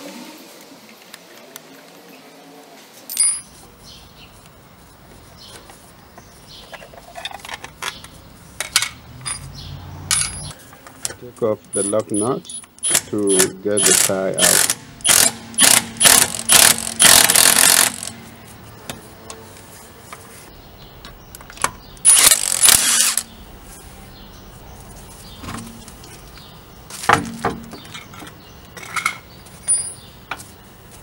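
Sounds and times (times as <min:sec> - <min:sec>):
impact wrench bursts: 0:11.7 - 0:18.3, 0:22.0 - 0:23.3.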